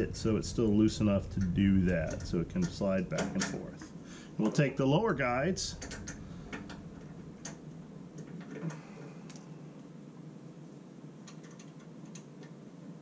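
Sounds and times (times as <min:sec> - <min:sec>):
steady low hum: 0:00.0 - 0:13.0
small metal parts clicking: 0:05.8 - 0:07.6.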